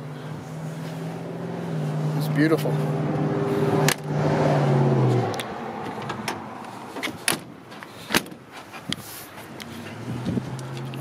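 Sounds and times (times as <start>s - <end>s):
car engine humming: 0.0s - 11.0s
car door clicks: 7.0s - 8.4s.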